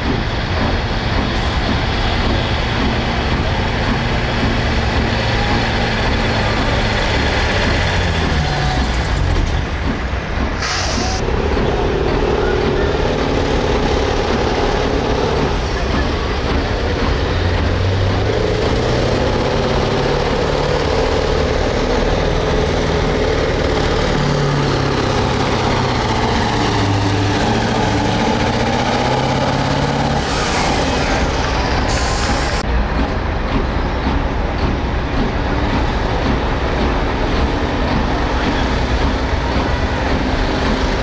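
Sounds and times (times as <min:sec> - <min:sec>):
truck engine running hard: 0:00.0 - 0:41.0
loud hiss: 0:10.6 - 0:11.2.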